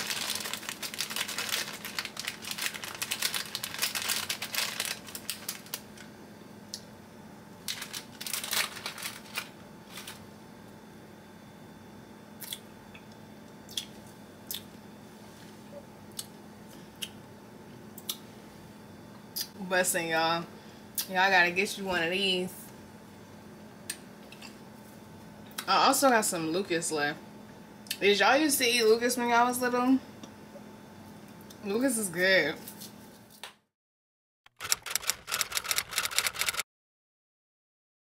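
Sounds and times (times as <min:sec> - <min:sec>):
plastic wrapper crinkling: 0:00.0 - 0:06.1, 0:07.6 - 0:10.2.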